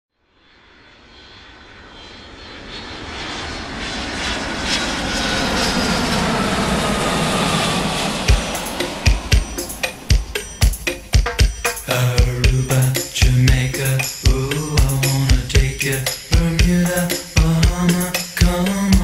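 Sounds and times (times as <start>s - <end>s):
jet airliner flying past: 0.2s - 19.0s
drum hit: 8.2s - 19.0s.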